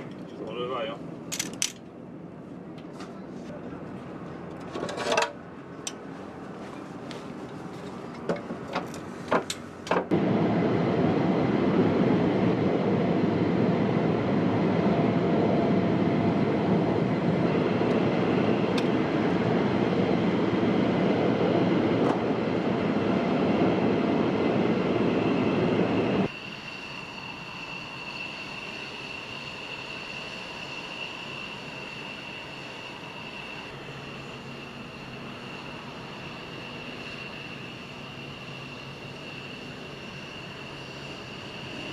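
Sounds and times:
jet engine rush: 9.9s - 41.9s
high turbine whine: 10.1s - 41.9s.

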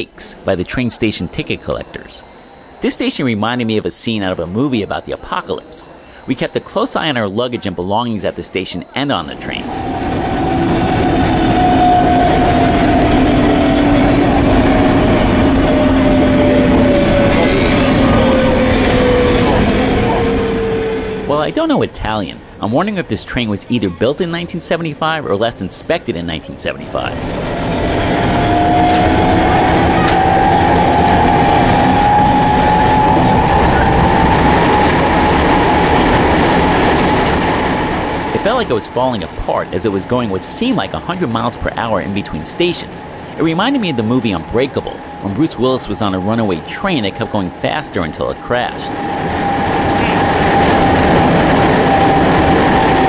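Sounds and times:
train wheels and motors rumbling: 8.6s - 53.0s
train motor whine: 9.3s - 21.6s, 26.8s - 53.0s.

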